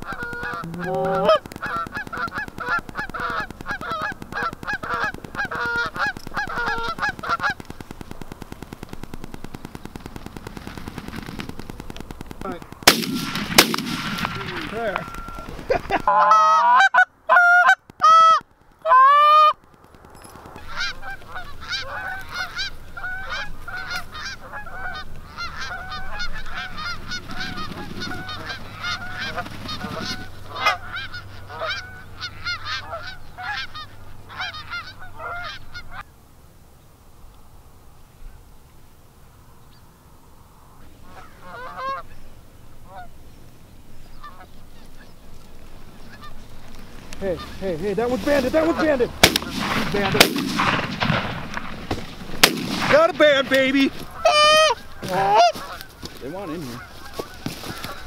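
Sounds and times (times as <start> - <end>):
sharp cracks: 0.0 - 16.1, 17.8 - 33.6, 45.3 - 58.0
geese honking: 0.0 - 19.6, 20.4 - 36.1, 40.4 - 58.0.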